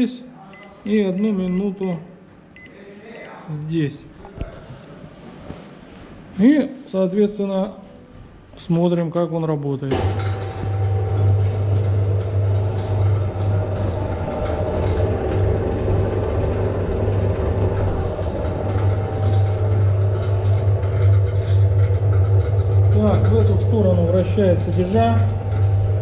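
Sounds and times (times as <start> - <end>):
dough mixer motor humming: 10.6 - 26.0.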